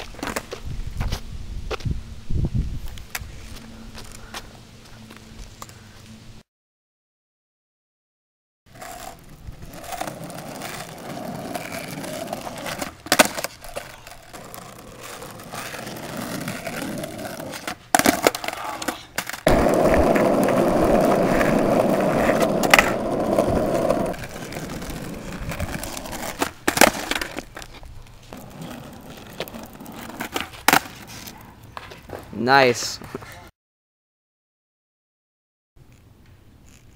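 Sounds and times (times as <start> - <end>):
skateboard wheels rolling on asphalt: 0.0 - 5.7, 8.7 - 33.3
skateboard tail popping and landing: 8.8 - 27.8, 28.4 - 31.2.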